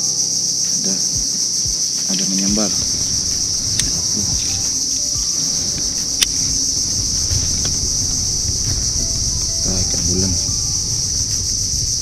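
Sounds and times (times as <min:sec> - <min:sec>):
high-pitched insect-like buzz: 0:00.0 - 0:12.0
wind rumble on microphone: 0:02.4 - 0:12.0.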